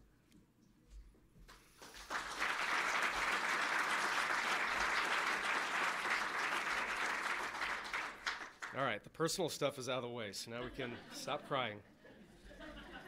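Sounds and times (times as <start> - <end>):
audience applauding: 1.6 - 8.9.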